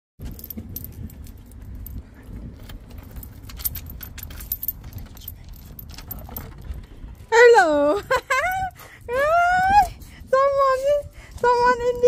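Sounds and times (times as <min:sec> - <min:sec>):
key in door lock: 0:00.2 - 0:07.3
keys jangling: 0:00.2 - 0:10.8
low rumble: 0:00.2 - 0:12.0.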